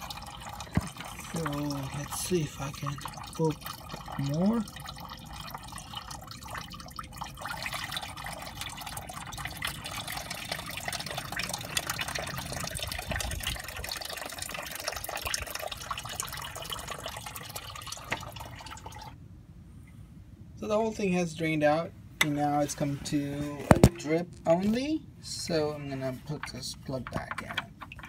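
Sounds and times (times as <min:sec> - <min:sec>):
coolant dripping into a pan: 0:00.0 - 0:19.2.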